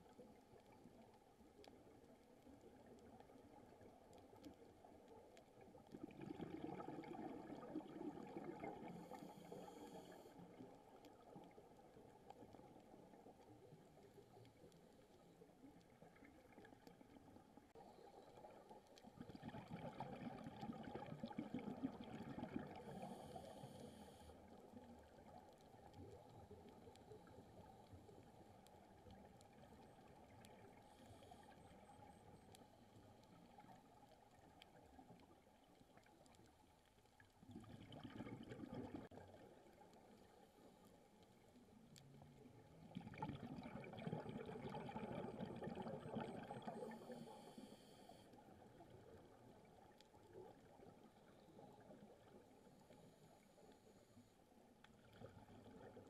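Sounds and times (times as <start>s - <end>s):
diver exhaling bubbles underwater: 6.0s - 9.1s, 43.0s - 47.2s.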